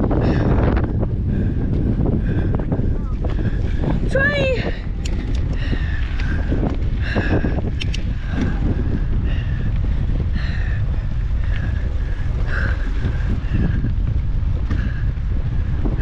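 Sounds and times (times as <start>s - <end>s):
mountain bike rumble: 0.0s - 16.0s
wind buffeting camera: 0.0s - 16.0s.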